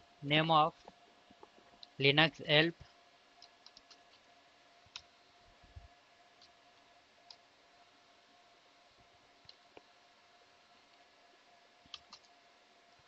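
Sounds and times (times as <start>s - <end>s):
faint steady hum: 0.0s - 13.0s
computer keyboard keystrokes: 3.4s - 4.0s, 11.9s - 12.3s.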